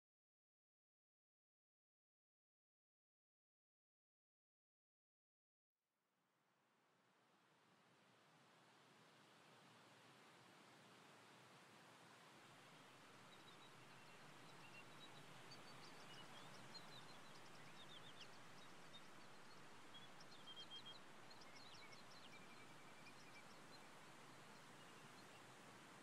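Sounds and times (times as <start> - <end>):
soft steady hiss: 6.4 - 26.0.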